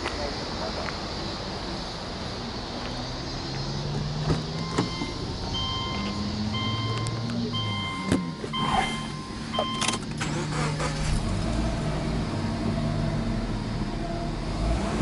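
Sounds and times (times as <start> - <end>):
car door clicks: 8.0 - 10.4.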